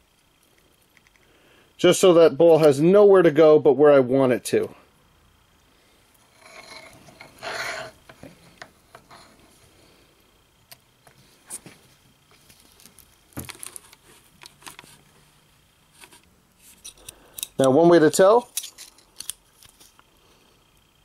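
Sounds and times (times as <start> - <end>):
steel knife parts scraping: 6.3 - 8.1, 16.0 - 17.7, 18.4 - 19.4.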